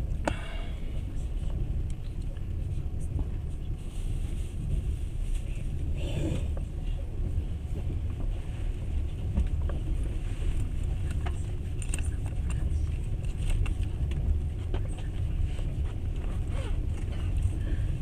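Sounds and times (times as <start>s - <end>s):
train rumbling on track: 0.0s - 18.0s
small clicks and rattles: 10.5s - 15.3s.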